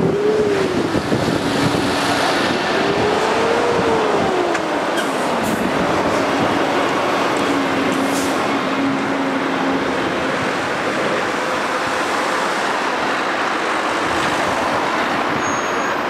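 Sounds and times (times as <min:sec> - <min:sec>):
truck pulling away: 0:00.0 - 0:12.0
wind buffeting microphone: 0:00.0 - 0:15.4
cars passing: 0:00.0 - 0:16.0.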